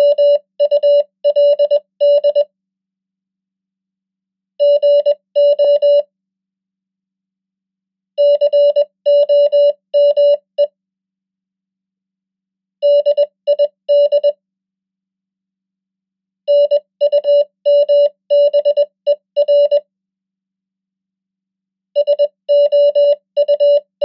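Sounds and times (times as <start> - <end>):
morse code beeps: 0.0 - 2.5, 4.6 - 6.1, 8.2 - 10.7, 12.8 - 14.4, 16.5 - 19.8, 22.0 - 24.0.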